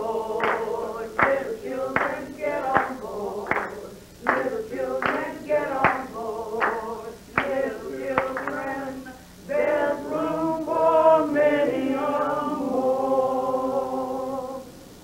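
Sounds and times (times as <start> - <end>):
group singing unaccompanied: 0.0 - 14.8
hand claps: 0.4 - 8.8.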